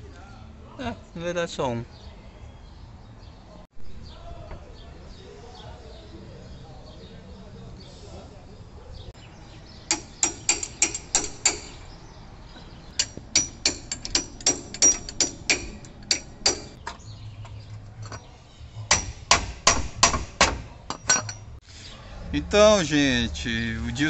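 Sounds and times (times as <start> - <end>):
hammer ringing on metal: 13.0 - 16.8, 18.9 - 21.4.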